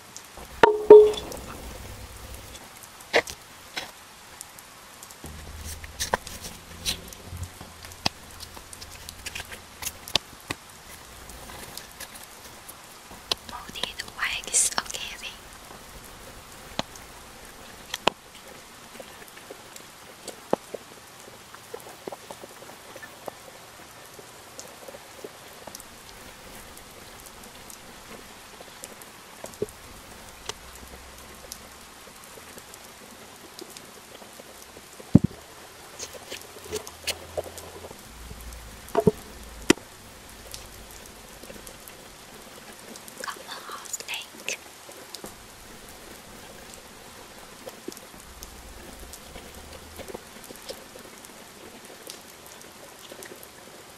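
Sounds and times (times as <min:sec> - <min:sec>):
soil crumbling hiss: 0:05.2 - 0:19.5.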